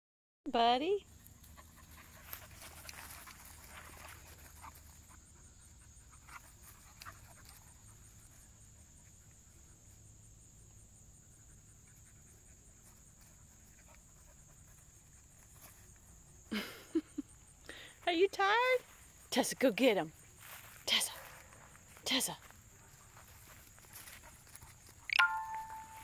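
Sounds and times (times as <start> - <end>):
dogs scuffling on grass: 1.2 - 5.2, 18.6 - 26.0
dogs panting: 1.2 - 9.8, 22.7 - 25.1.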